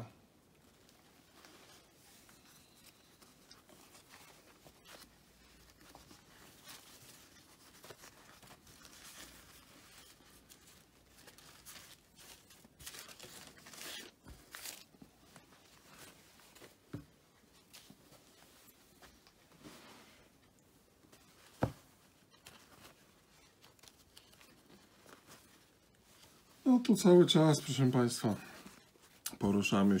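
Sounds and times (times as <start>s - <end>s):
paper napkins rustling: 0.4s - 30.0s.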